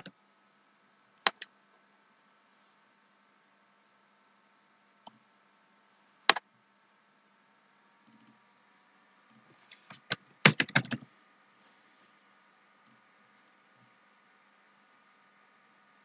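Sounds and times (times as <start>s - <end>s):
typing on computer keyboard: 9.8s - 11.1s.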